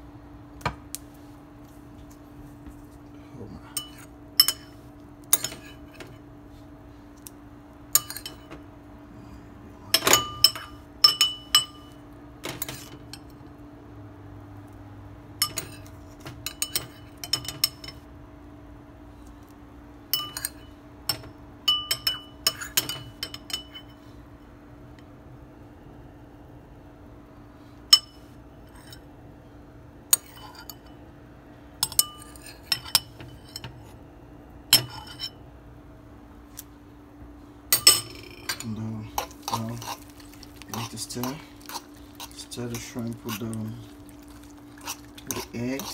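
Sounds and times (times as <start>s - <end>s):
steady low hum: 0.0s - 45.9s
spoon clinking on ceramic bowl: 10.0s - 11.9s, 20.2s - 23.9s.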